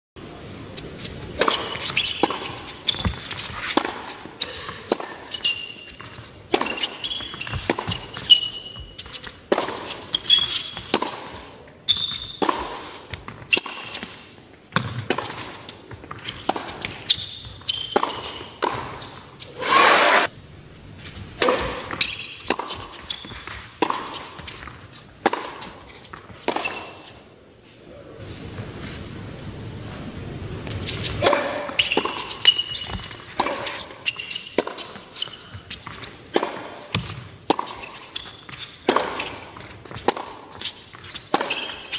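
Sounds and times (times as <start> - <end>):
racket hitting tennis ball: 0.8 - 20.3, 21.0 - 27.2, 30.6 - 41.9
sneaker squeaks on court: 1.0 - 3.7, 4.4 - 14.2, 16.0 - 19.5, 21.4 - 24.8, 30.8 - 41.9.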